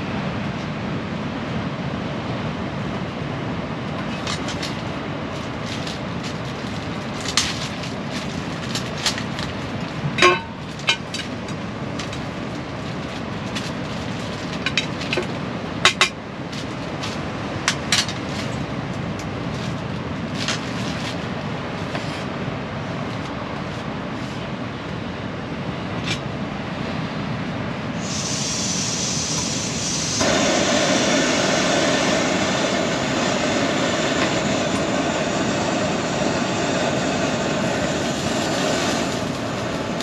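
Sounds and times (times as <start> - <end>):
rain on tent: 3.9 - 24.3, 36.8 - 40.0
storm wind rushing: 25.7 - 40.0.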